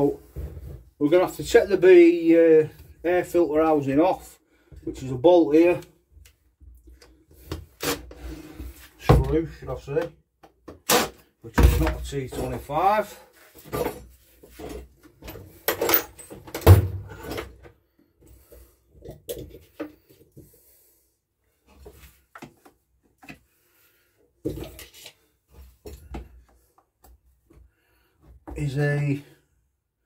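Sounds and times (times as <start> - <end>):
tools clattering on wooden workbench: 13.5 - 17.7.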